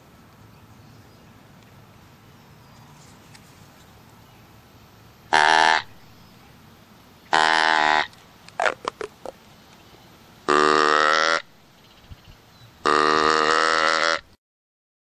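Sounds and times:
deer call blown: 5.3 - 6.0, 7.3 - 9.3, 10.5 - 11.5, 12.8 - 14.4.

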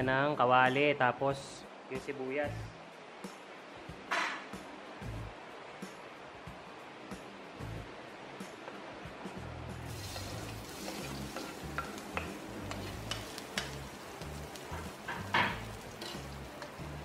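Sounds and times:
metal ladle scraping a pan: 9.9 - 16.8
onion sizzling in hot oil: 9.9 - 17.0.

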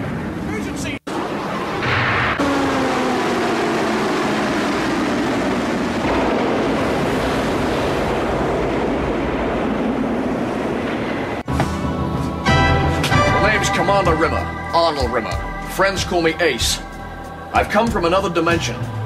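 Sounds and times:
rushing roar of engine and surf: 0.0 - 12.0
falling whine: 0.0 - 19.0.

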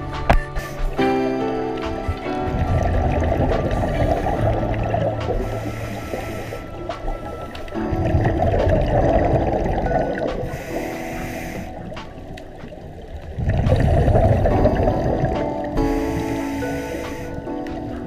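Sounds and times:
diver inhaling through regulator: 3.7 - 7.0, 10.4 - 12.0, 15.8 - 17.6
diver exhaling bubbles underwater: 13.3 - 16.8.

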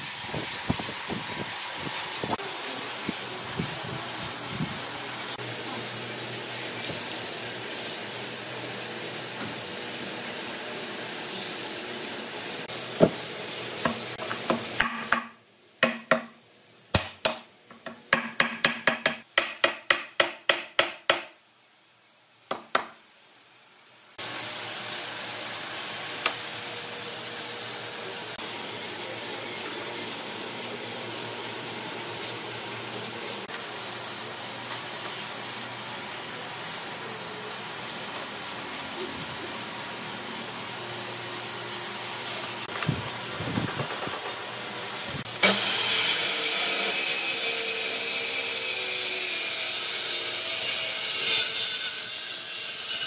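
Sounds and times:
machine hum and hiss: 0.0 - 53.0.

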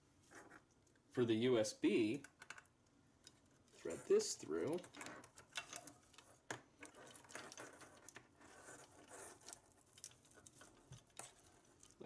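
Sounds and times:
cable rustling and scraping: 3.2 - 12.0.

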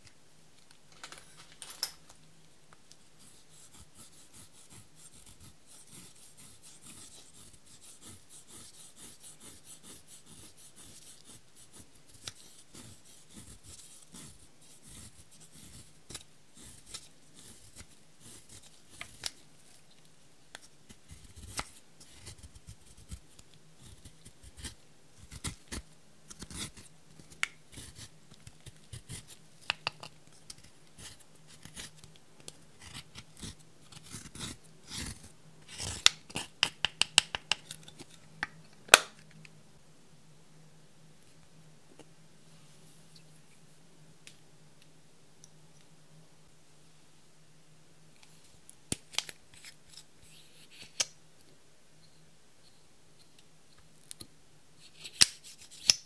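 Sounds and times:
spatula scraping powder: 3.2 - 19.3, 32.8 - 36.6.

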